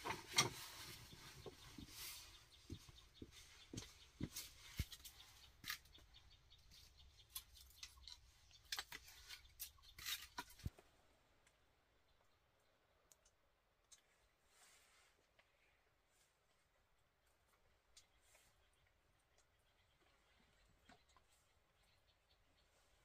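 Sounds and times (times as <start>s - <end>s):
objects clicking and knocking on dirt: 0.0s - 2.0s, 2.7s - 11.6s.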